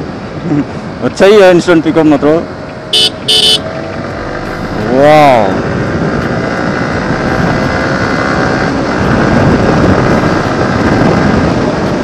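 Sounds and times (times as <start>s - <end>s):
motorcycle engine accelerating: 3.7s - 11.6s
wind rush over microphone: 4.0s - 12.0s.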